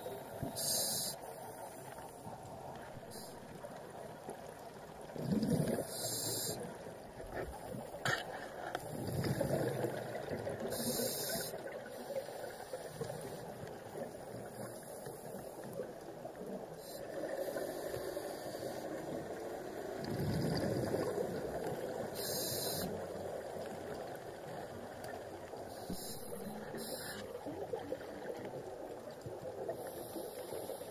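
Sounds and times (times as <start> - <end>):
regulator inhaling hiss: 0.1 - 2.1, 5.9 - 6.7, 10.7 - 13.6, 16.8 - 19.2, 22.1 - 23.0, 25.7 - 27.3, 29.7 - 30.9
exhaled bubbles: 5.1 - 6.6, 19.9 - 22.8.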